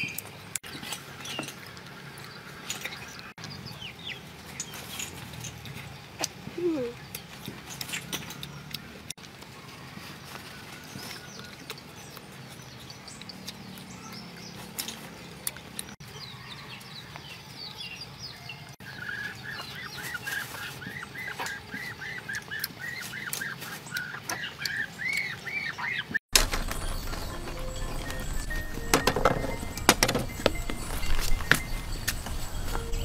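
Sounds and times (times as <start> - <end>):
birds chirping: 10.5 - 33.0.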